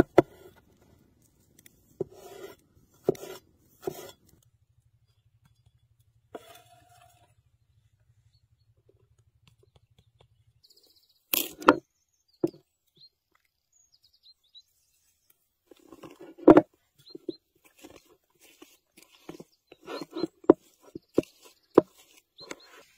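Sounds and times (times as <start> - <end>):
high bird chirps: 17.0 - 17.5, 18.6 - 22.9.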